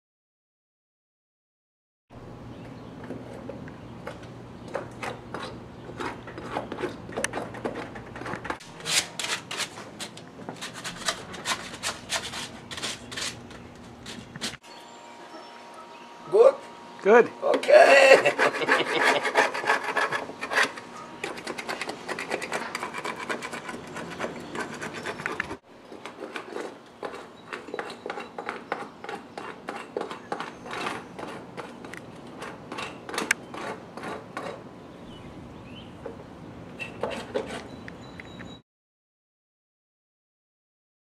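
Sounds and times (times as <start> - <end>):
paint scraper rasping on wood: 4.9 - 14.6, 18.0 - 34.6.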